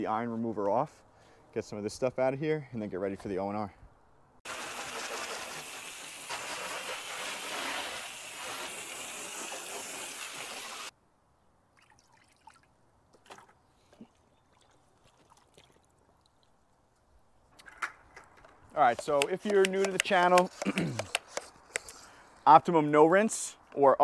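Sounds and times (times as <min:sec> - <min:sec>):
water spray hissing: 0:04.5 - 0:10.9.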